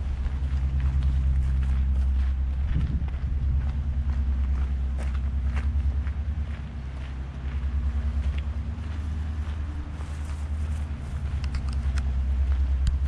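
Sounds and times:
low engine rumble: 0:00.0 - 0:13.0
light clicks: 0:11.4 - 0:12.1.

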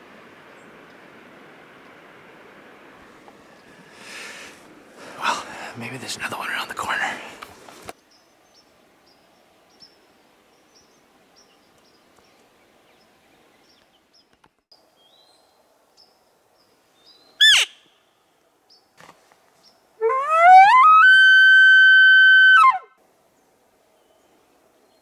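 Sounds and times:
elk call whistle: 0:17.4 - 0:17.8, 0:20.0 - 0:22.9.

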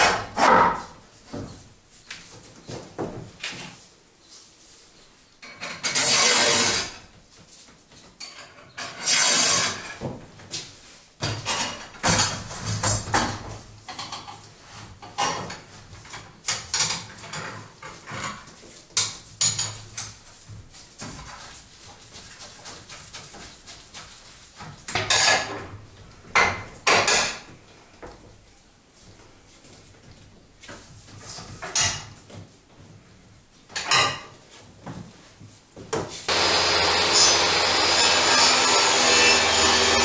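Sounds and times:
metal rods scraping: 0:05.8 - 0:07.0, 0:08.8 - 0:09.8.

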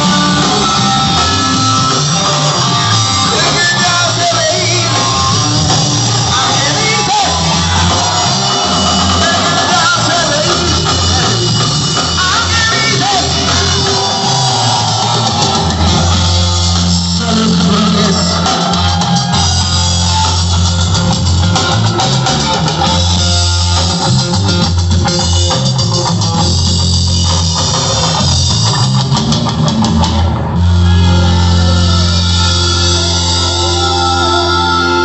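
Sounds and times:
live rock band playing: 0:00.0 - 0:35.0
man singing into a microphone: 0:03.2 - 0:05.3, 0:06.2 - 0:07.5, 0:09.0 - 0:14.2.

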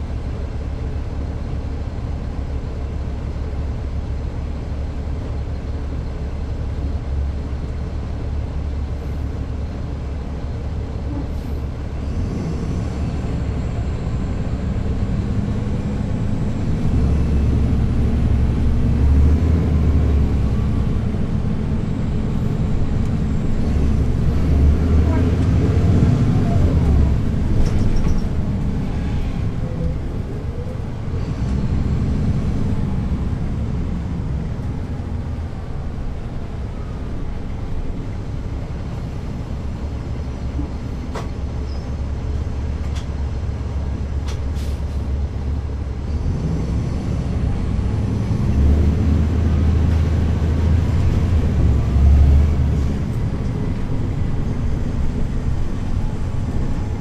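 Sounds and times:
bus diesel engine: 0:00.0 - 0:57.0.

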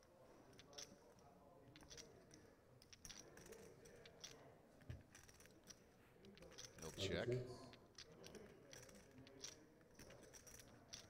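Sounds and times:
poker chips clicking: 0:07.9 - 0:11.0.

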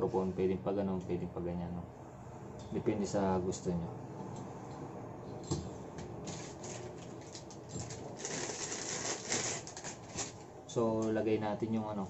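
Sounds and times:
plastic wrapping crinkling: 0:06.2 - 0:10.4.

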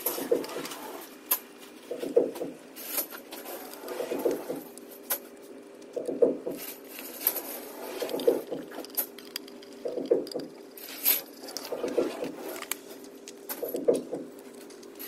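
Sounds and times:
small screws clicking and tapping: 0:08.2 - 0:12.0.

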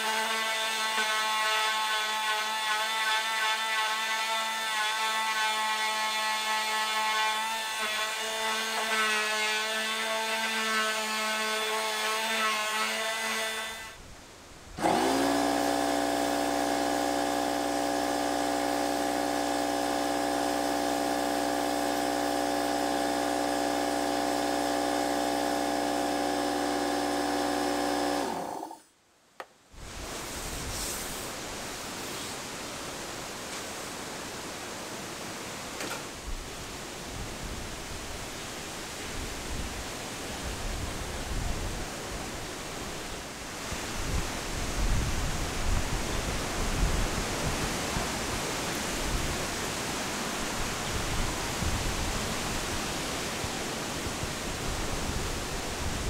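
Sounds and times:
power sander whining: 0:14.8 - 0:28.8.

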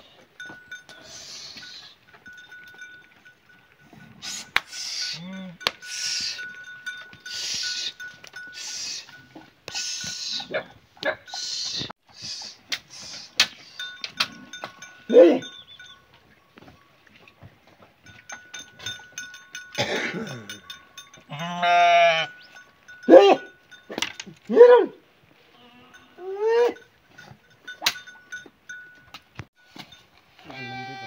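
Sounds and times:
sheep bleating: 0:21.3 - 0:22.3, 0:30.4 - 0:31.0.

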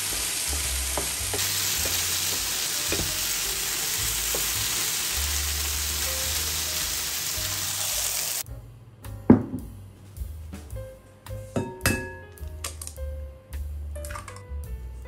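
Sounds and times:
food sizzling in a pan: 0:00.0 - 0:08.4
utensil tapping pan: 0:00.1 - 0:03.5.

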